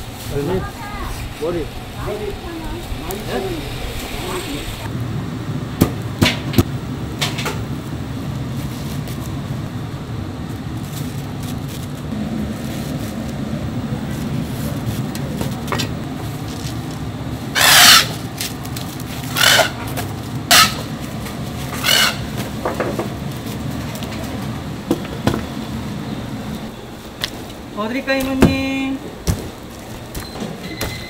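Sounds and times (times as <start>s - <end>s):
busy market hum: 0.0s - 31.0s
loud short noises: 20.5s - 20.9s.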